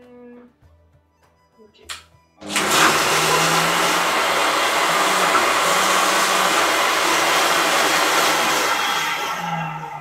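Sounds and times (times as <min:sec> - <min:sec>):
food processor blending: 0:02.4 - 0:10.0.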